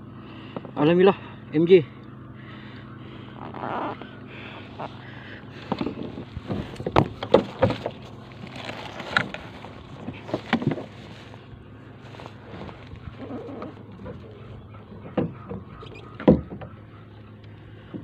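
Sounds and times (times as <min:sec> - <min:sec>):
rustling and shuffling: 0:03.4 - 0:15.8.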